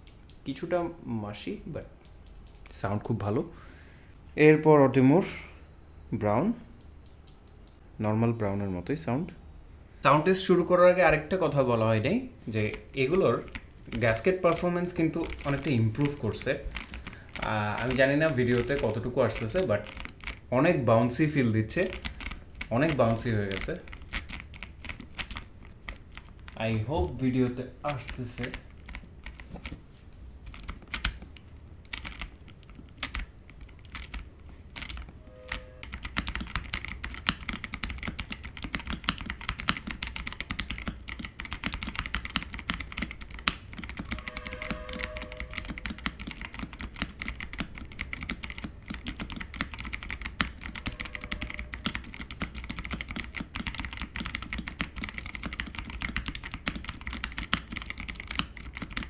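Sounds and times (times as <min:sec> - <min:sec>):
mechanical keyboard typing: 0:12.6 - 0:29.8, 0:30.4 - 0:59.0.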